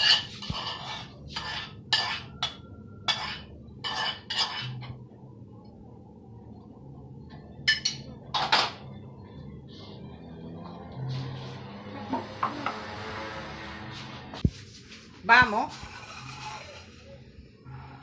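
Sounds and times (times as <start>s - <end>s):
pot clanking: 0.0s - 4.9s, 7.6s - 8.8s
spoon scraping inside a pot: 0.0s - 5.0s, 15.7s - 17.1s.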